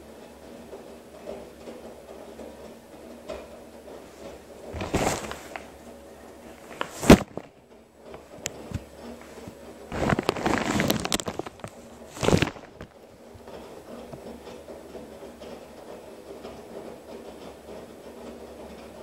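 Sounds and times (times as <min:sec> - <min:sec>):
washer low hum: 0:00.0 - 0:19.0
laundry and water sloshing: 0:03.9 - 0:14.4.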